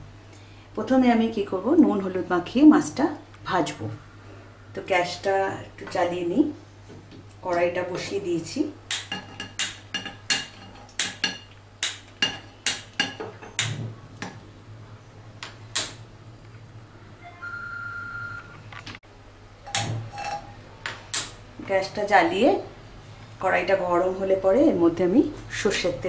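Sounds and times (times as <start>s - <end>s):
gas stove igniter clicking: 15.4s - 16.0s
steady high tone: 17.0s - 18.6s.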